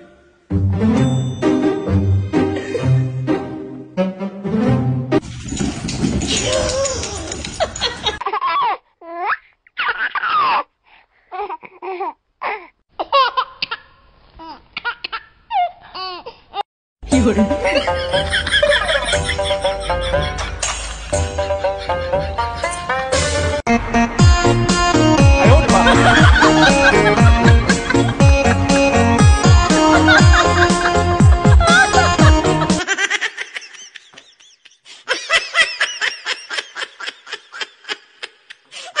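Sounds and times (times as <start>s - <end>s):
person laughing hard: 17.6s - 23.1s, 25.2s - 39.0s
high laugh-like squeals: 30.0s - 39.0s.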